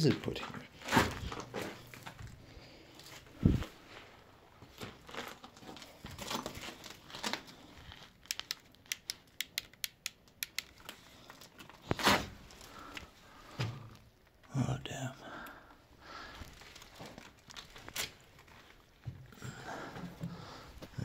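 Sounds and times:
footsteps crunching on debris: 0:00.4 - 0:02.4, 0:03.0 - 0:08.2, 0:16.4 - 0:19.2
sharp clicks: 0:08.2 - 0:11.0.

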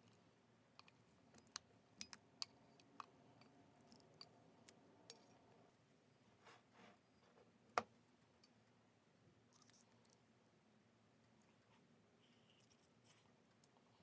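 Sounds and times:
soft brushing sounds: 0:05.1 - 0:07.6.

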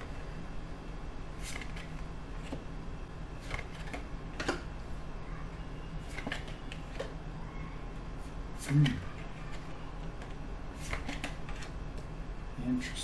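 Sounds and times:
steady low hum: 0:00.0 - 0:13.0
cards clicking and slapping: 0:01.4 - 0:02.6, 0:03.4 - 0:04.6, 0:06.0 - 0:07.1, 0:08.6 - 0:11.8.

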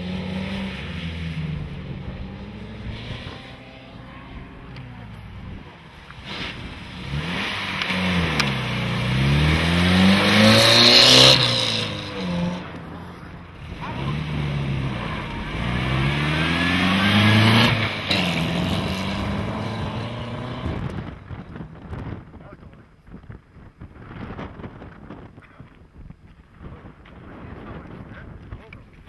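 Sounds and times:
rally car engines passing: 0:00.0 - 0:21.7.

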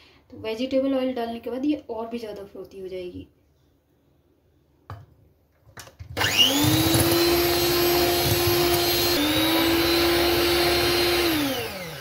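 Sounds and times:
electric hand mixer whining: 0:06.1 - 0:12.0.

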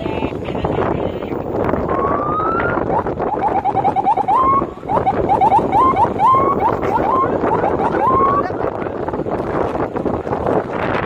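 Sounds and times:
road and engine noise: 0:00.0 - 0:11.0
electronic siren chirping: 0:01.8 - 0:08.5.

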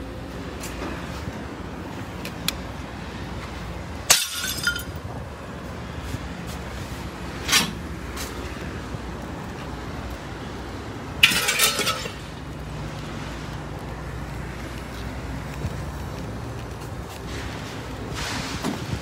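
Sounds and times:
junk crashing onto concrete: 0:04.0 - 0:05.0, 0:11.2 - 0:12.4.

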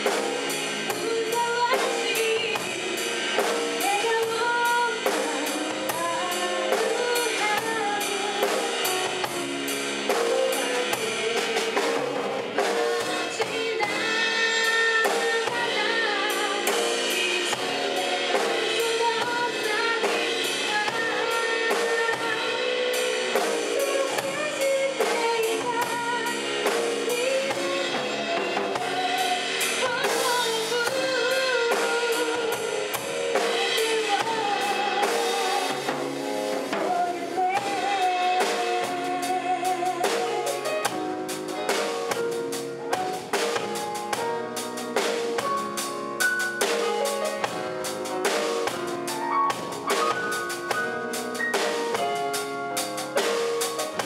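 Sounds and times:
drum kit beats: 0:00.0 - 0:54.0
woman singing into microphone: 0:00.9 - 0:09.6, 0:10.2 - 0:36.0, 0:36.7 - 0:41.0.

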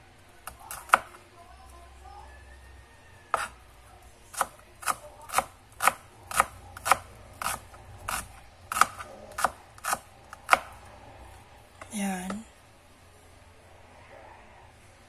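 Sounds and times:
knife chopping on cutting board: 0:00.5 - 0:01.2, 0:03.3 - 0:03.5, 0:04.3 - 0:10.8.

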